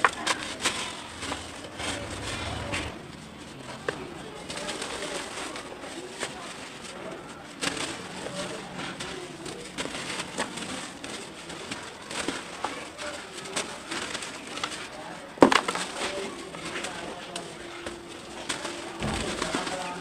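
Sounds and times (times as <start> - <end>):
crumbs pattering into metal tub: 6.3 - 20.0.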